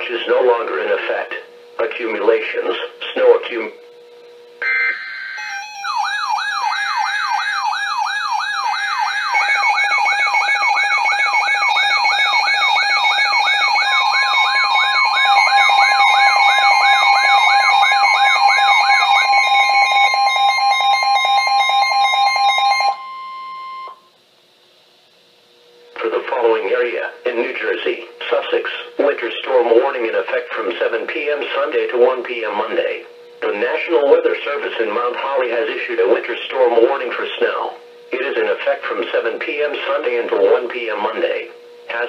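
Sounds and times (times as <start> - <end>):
steady alarm tone: 0.0 - 24.2, 25.6 - 42.0
warbling siren-like alarm: 4.2 - 24.1
electronic beeping: 4.6 - 24.0.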